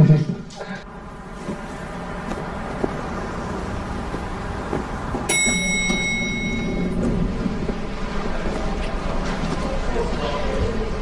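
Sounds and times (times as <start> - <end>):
street traffic noise: 0.0 - 11.0
elevator arrival ding: 5.3 - 8.0.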